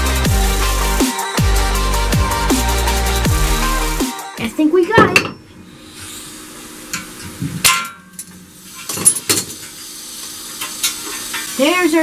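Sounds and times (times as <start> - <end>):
metal-on-metal clanks: 6.9 - 9.6.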